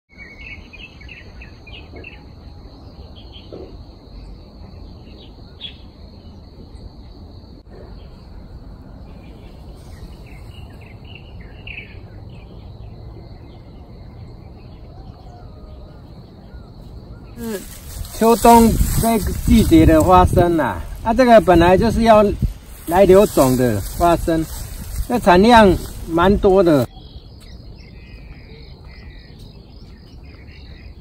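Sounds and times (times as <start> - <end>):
birds chirping: 7.7 - 31.0
high-pitched insect drone: 17.4 - 27.0.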